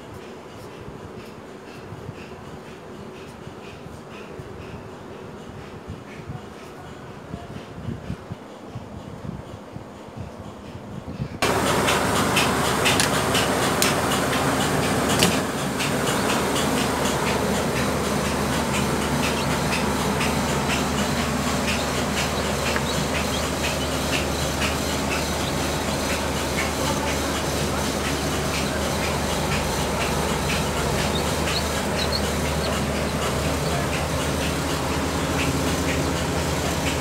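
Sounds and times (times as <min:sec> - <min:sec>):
incubator fan hum: 0:11.0 - 0:37.0
chicks peeping: 0:15.1 - 0:36.0.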